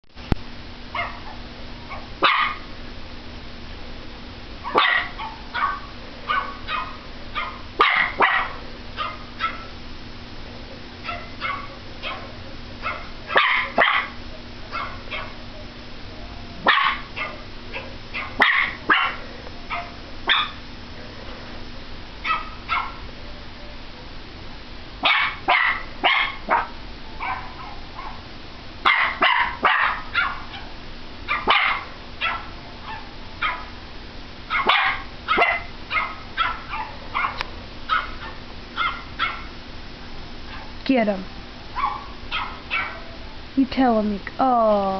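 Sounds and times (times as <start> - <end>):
small dog yapping: 0.9 - 2.7, 4.6 - 9.8, 11.0 - 15.4, 16.5 - 20.6, 22.2 - 23.1, 25.0 - 28.2, 28.8 - 33.8, 34.5 - 39.6, 40.5 - 40.8, 41.7 - 43.2.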